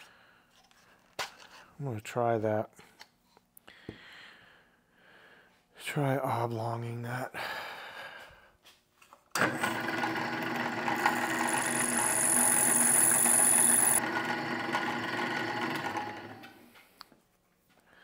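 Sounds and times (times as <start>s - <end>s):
small electric power tool motor: 9.5s - 16.6s
high-pitched cutting whine: 11.0s - 14.0s.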